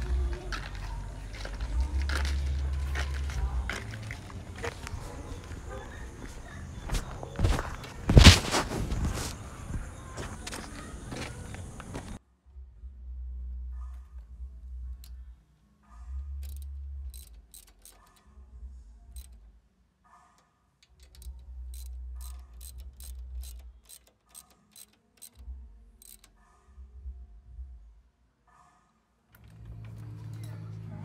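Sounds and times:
ratchet wrench clicking: 0:16.4 - 0:18.2, 0:19.2 - 0:19.4, 0:20.8 - 0:26.4.

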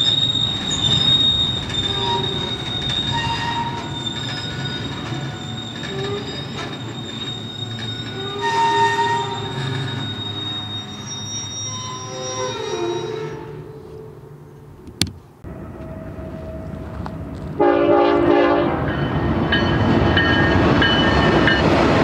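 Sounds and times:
high-pitched wheel squeal: 0:00.0 - 0:14.7
train cars rumbling past: 0:00.0 - 0:22.0.

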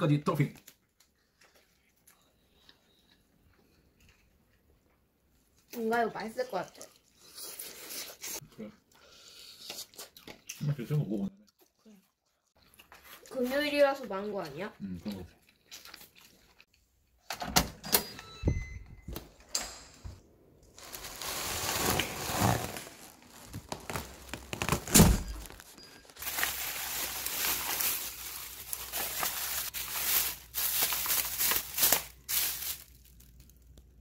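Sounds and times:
plastic bag crinkling: 0:20.7 - 0:33.9.

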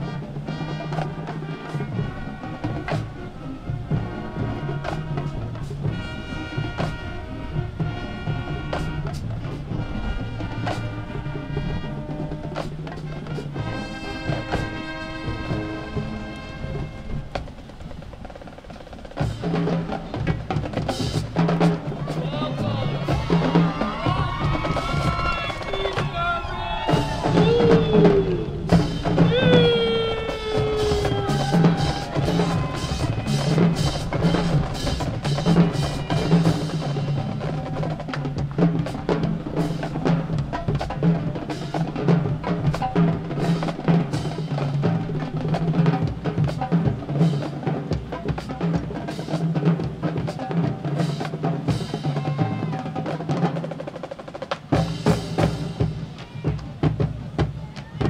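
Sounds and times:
snare drum rolls: 0:00.0 - 0:58.0
bass drums: 0:19.0 - 0:52.7.

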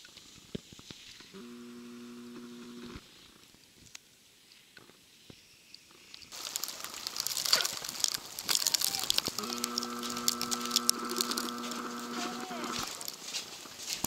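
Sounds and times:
footsteps on slushy snow: 0:06.3 - 0:14.0.

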